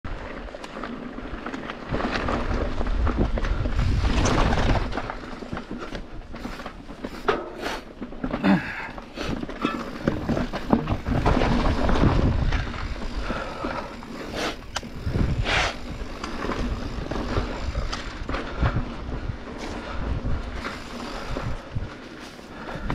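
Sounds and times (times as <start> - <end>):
bike clattering over bumps: 0.1 - 22.9
bike tyre rumble on dirt: 0.1 - 22.9
wind buffeting microphone: 1.9 - 7.2, 8.8 - 22.9.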